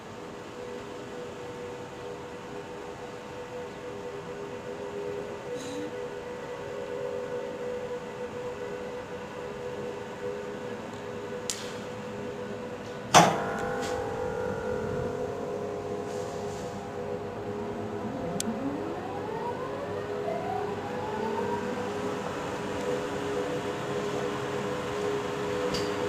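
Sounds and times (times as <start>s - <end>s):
electrical hum: 0.0s - 26.0s
rising whine: 6.0s - 25.8s.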